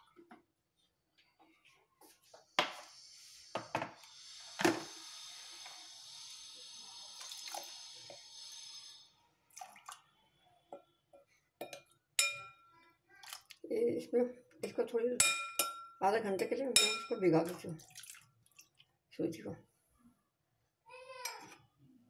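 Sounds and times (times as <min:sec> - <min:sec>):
water trickling into a bowl: 0:07.0 - 0:08.0, 0:09.5 - 0:10.1, 0:16.8 - 0:18.9.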